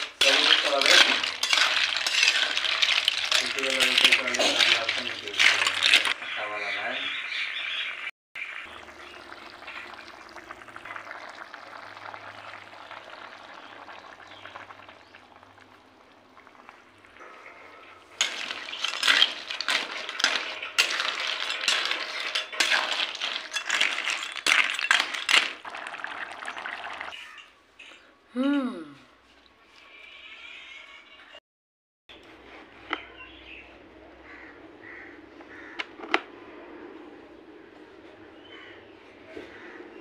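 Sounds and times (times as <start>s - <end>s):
curry boiling and bubbling: 0.0s - 6.3s, 8.4s - 27.2s.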